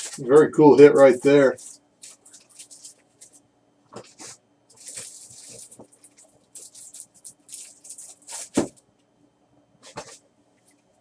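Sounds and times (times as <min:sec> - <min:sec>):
rustles and scrapes: 0:04.0 - 0:08.8, 0:09.8 - 0:10.9.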